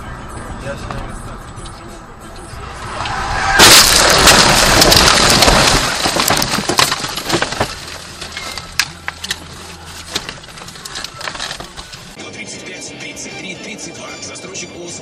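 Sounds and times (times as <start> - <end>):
branches scraping car body: 2.6 - 12.2
debris clicking and rattling: 3.0 - 12.2.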